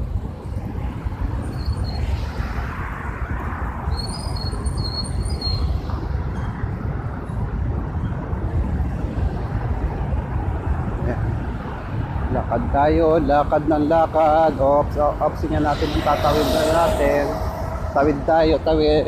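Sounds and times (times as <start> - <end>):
passing road traffic: 0.0 - 19.0
wind on microphone: 0.0 - 19.0.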